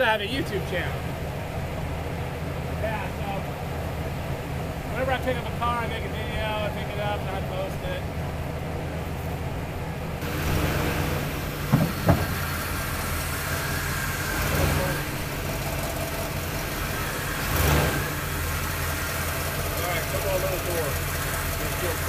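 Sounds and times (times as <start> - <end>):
vehicle engine idling: 0.0 - 22.0
rushing noise: 10.2 - 22.0.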